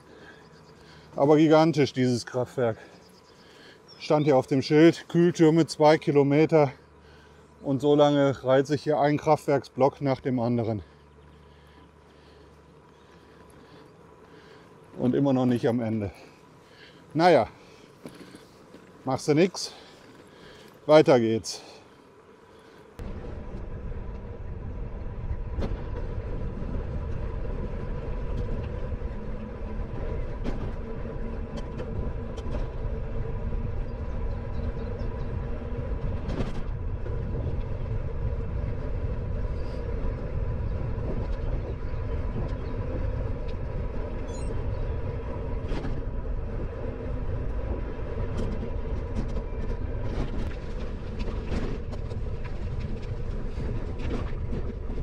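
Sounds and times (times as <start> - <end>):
bicycle tyres rumbling: 0.0 - 55.0
faint steady hum: 0.0 - 55.0
wind on microphone: 23.0 - 55.0.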